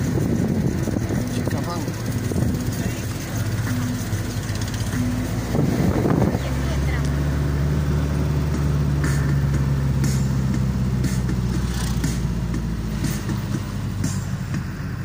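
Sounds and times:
faint rattles: 0.0s - 6.6s
car engine hum: 0.0s - 15.0s
road noise: 0.0s - 15.0s.

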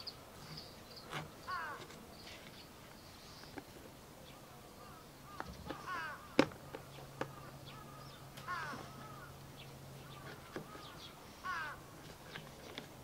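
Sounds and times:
crows cawing: 1.4s - 1.9s, 4.4s - 12.1s.

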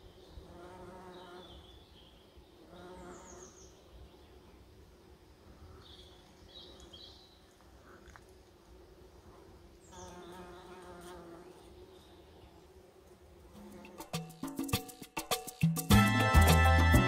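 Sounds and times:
bumblebee buzzing in flight: 0.4s - 1.6s, 9.0s - 14.7s.

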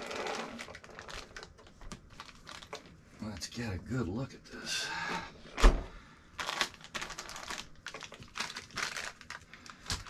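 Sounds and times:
packaging crinkling: 0.0s - 3.0s, 6.4s - 10.0s.

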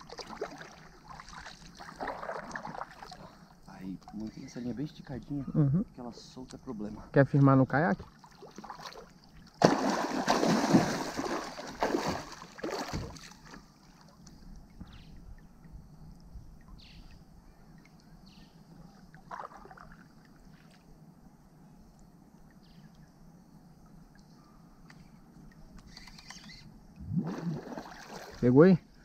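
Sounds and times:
river water splashing: 0.0s - 4.5s, 8.0s - 14.2s, 19.0s - 20.9s, 25.9s - 28.7s
small splashes and ticks: 0.0s - 5.3s, 8.0s - 15.0s, 18.9s - 20.9s, 24.0s - 26.6s, 27.6s - 28.4s.

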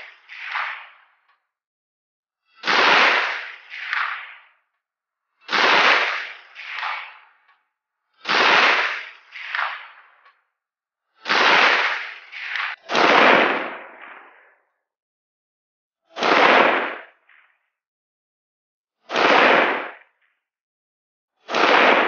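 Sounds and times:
rifle shots: 0.0s - 1.2s, 2.6s - 4.6s, 5.4s - 7.5s, 8.2s - 10.2s, 11.2s - 14.6s, 16.2s - 17.4s, 19.1s - 20.1s, 21.5s - 22.0s.

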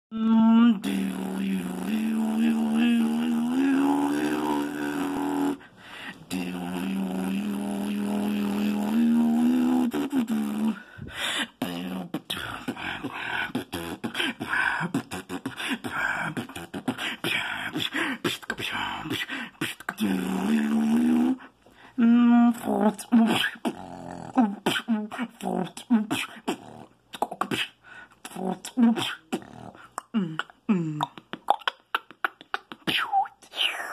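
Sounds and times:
percussive mouth sounds: 0.2s - 33.9s.

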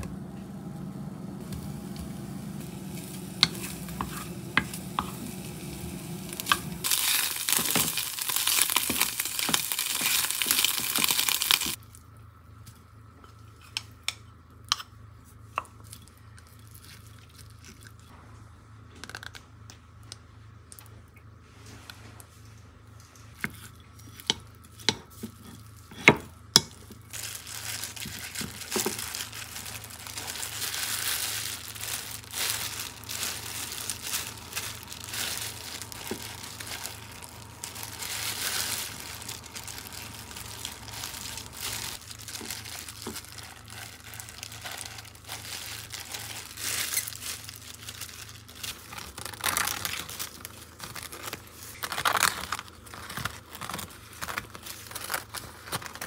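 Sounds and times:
plastic glove crinkling: 1.4s - 11.8s, 26.8s - 56.0s.

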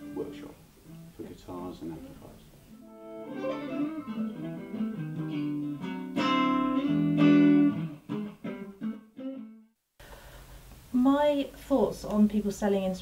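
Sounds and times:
guitar plucked and strummed: 0.0s - 9.7s.

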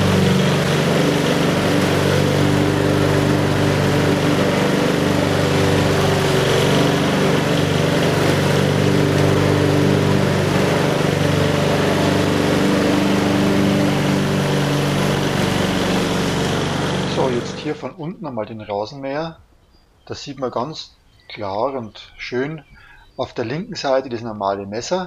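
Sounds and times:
lawn mower engine running: 0.0s - 18.0s.

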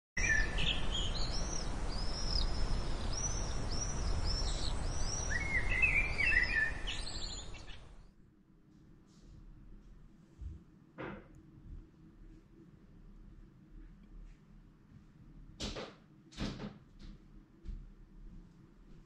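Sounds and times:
birds chirping: 0.2s - 8.1s.

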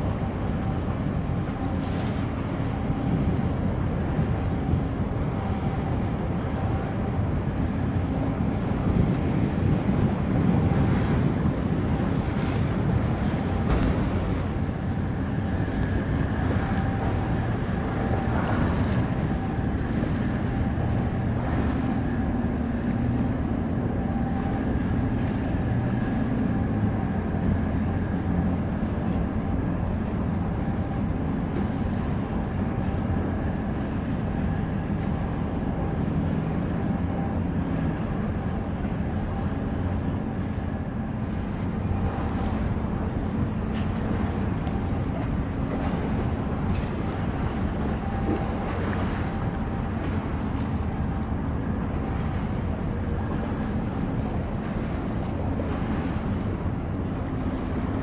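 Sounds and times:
faint steady whine: 0.0s - 58.0s
ship engines droning: 0.0s - 58.0s
wind and water noise: 0.0s - 58.0s.

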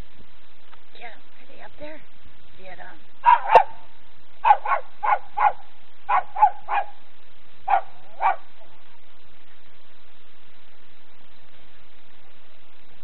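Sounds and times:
small dog barking: 3.2s - 8.8s.

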